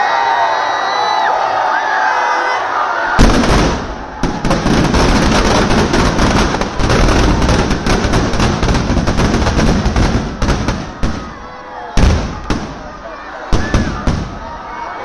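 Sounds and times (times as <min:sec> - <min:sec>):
firecrackers cracking and popping: 0:03.2 - 0:11.4, 0:12.0 - 0:14.5
loud bang: 0:03.2 - 0:11.4.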